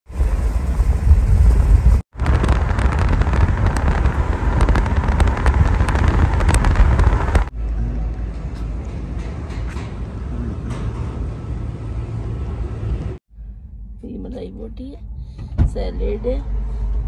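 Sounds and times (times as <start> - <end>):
car road noise rumble: 0.1 - 17.0
wind buffeting the microphone: 0.2 - 7.5
crackles: 0.3 - 8.2.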